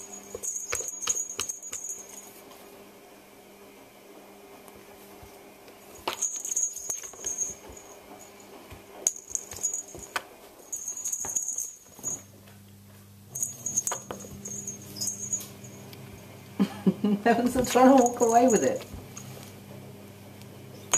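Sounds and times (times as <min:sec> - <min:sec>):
small bell jingling: 0:00.0 - 0:02.4, 0:06.1 - 0:12.3, 0:13.3 - 0:16.3, 0:17.6 - 0:18.9.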